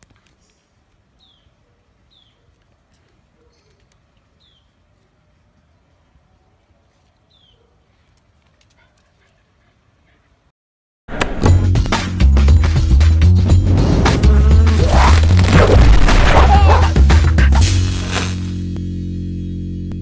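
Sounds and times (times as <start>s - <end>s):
bird chirping: 0.4s - 2.5s, 3.3s - 4.9s, 7.3s - 7.7s.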